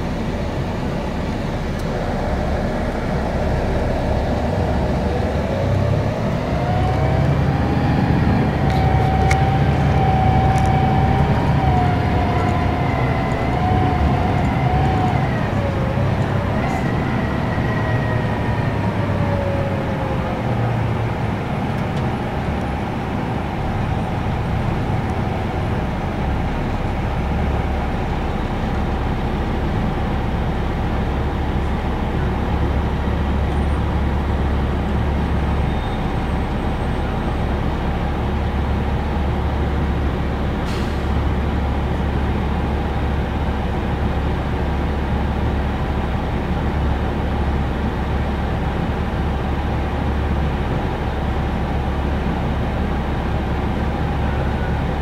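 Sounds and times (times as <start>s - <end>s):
bus whine falling in pitch: 0.0s - 37.9s
diesel engine idling: 0.0s - 55.0s.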